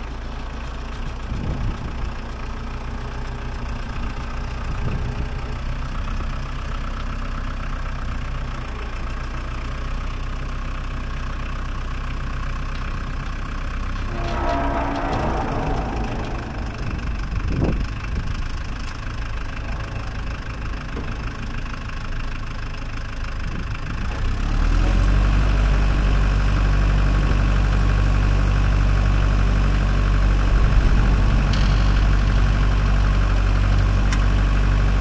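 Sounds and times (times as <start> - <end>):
tractor diesel engine running: 0.0 - 35.0
high-pitched whine: 13.8 - 21.8.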